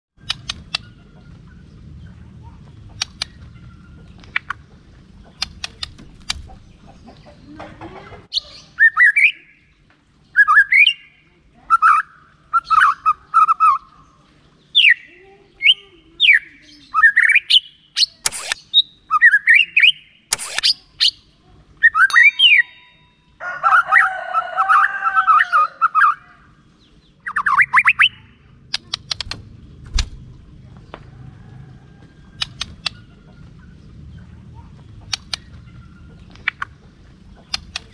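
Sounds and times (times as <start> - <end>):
sharp bird clicks: 0.2 - 1.0, 2.9 - 4.6, 5.2 - 6.7, 17.1 - 18.8, 19.5 - 21.2, 27.2 - 30.2, 32.4 - 33.1, 35.0 - 37.9
bird singing whistled notes: 8.3 - 9.6, 10.3 - 11.1, 14.7 - 21.2, 21.8 - 23.2, 27.2 - 28.3.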